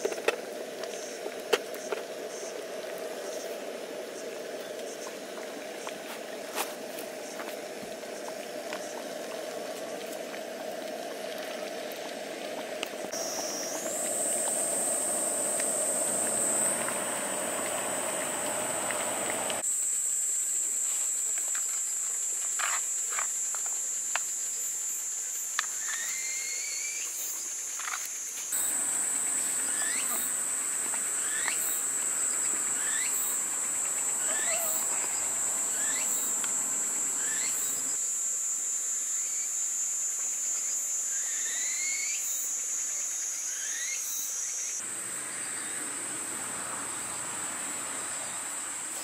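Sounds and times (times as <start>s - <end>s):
insects trilling: 0.0s - 11.7s, 13.0s - 49.0s
camping stove hissing: 13.1s - 19.7s.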